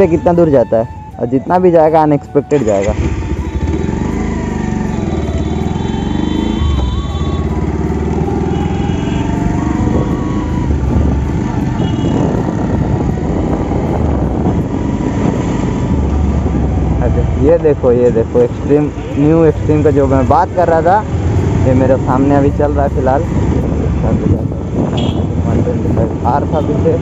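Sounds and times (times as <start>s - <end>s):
road and wind noise: 0.0s - 27.0s
motorcycle engine running: 2.9s - 17.3s.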